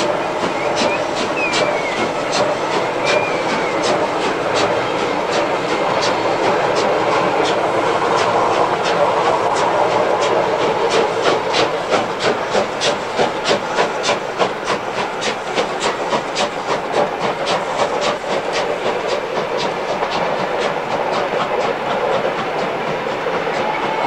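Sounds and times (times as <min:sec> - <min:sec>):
steam locomotive exhaust beats: 0:00.0 - 0:24.0
train rolling noise: 0:00.0 - 0:24.0.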